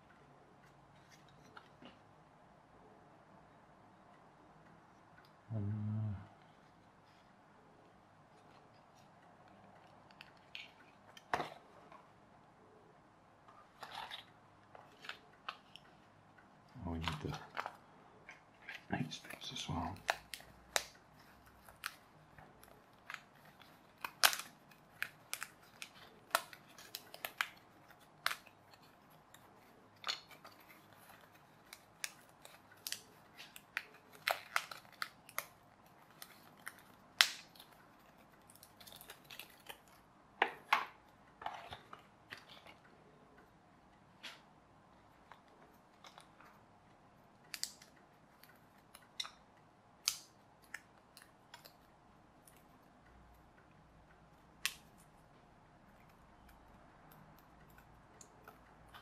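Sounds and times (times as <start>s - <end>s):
card pieces snapping: 21.6s - 40.8s.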